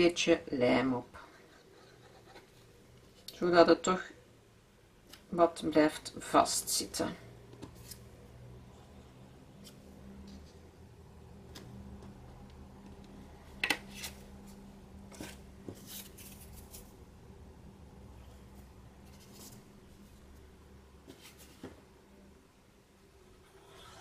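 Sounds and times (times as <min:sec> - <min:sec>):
paper rustling: 0:15.1 - 0:17.0.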